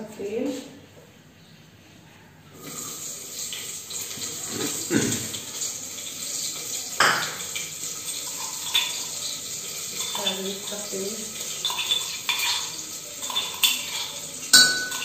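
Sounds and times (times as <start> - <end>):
oil sizzling in metal pot: 2.6 - 15.0
utensil clanking against pot: 11.4 - 15.0.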